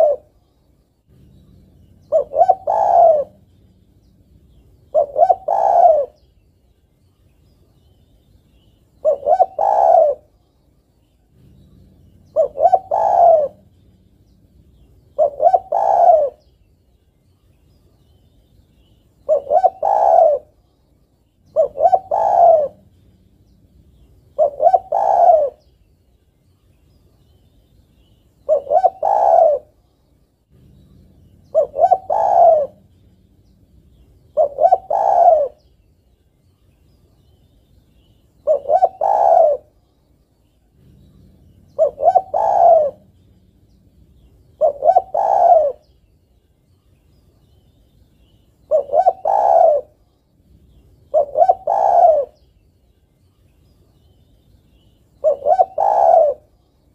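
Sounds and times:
dove cooing: 0.0 - 0.4, 1.1 - 6.3, 9.0 - 10.4, 11.2 - 16.6, 19.2 - 20.6, 21.4 - 25.7, 28.4 - 29.8, 30.5 - 35.8, 38.0 - 39.8, 40.6 - 46.0, 48.2 - 52.5, 54.8 - 56.6.

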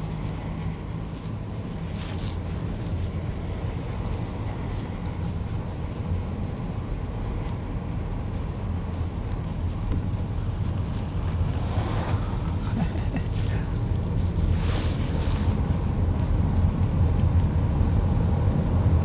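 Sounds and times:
car engine and tyre rumble: 0.0 - 19.0
brief rush of noise: 11.5 - 12.8.

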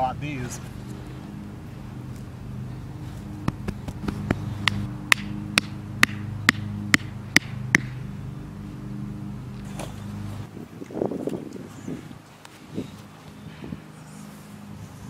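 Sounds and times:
low engine hum: 0.0 - 15.0
hammer driving wooden stake: 3.4 - 8.0.

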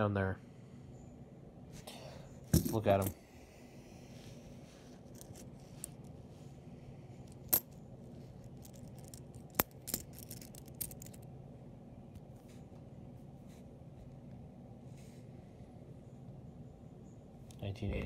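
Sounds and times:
coins clinking: 7.4 - 7.7, 8.6 - 11.2.

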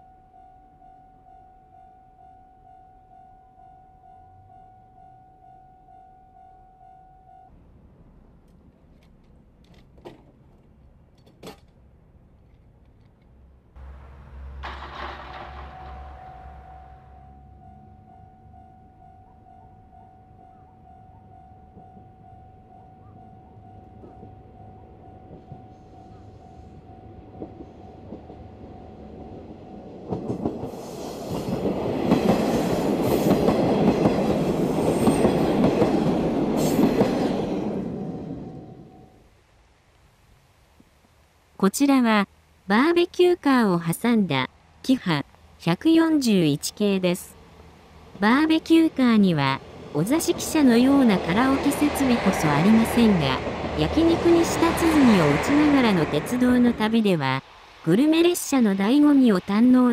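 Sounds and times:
diesel train rumble: 7.5 - 39.1, 47.1 - 59.9
wheels clacking over rail joints: 8.8 - 17.2, 27.3 - 37.8.

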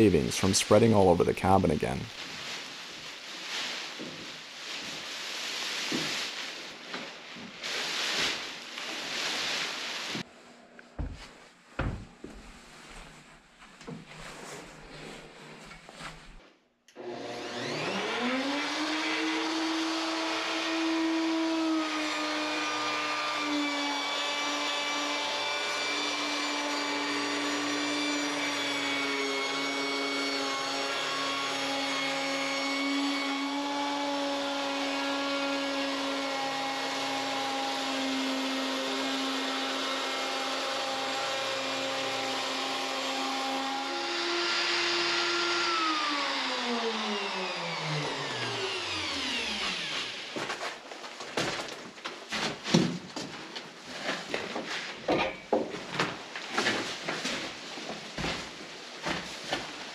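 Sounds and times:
electric router whining: 16.9 - 50.6.

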